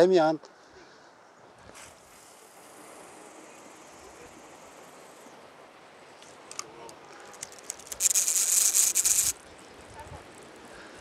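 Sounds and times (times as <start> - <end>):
fishing reel rattling: 6.5 - 9.5
fishing reel clicks: 7.3 - 9.4.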